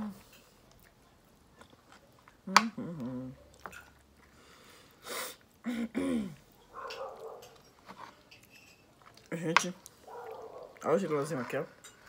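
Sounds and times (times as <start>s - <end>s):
wet chewing and lip-smacking: 0.2s - 5.6s, 6.4s - 11.8s
person humming: 2.5s - 3.4s
person sniffing: 4.4s - 6.4s.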